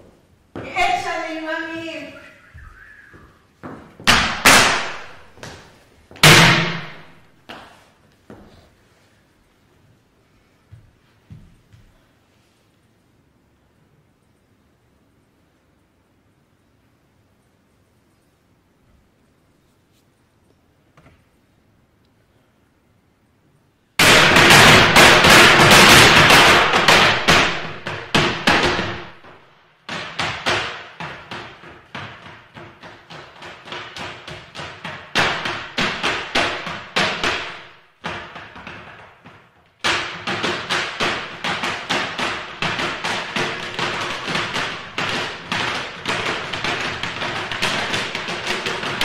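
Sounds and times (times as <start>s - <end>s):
boot heels stamping on wooden boxes: 3.1s - 8.6s, 24.0s - 49.0s.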